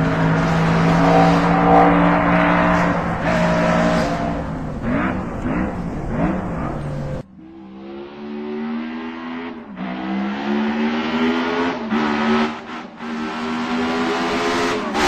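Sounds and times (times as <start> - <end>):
racing car engine revving: 0.0 - 15.0.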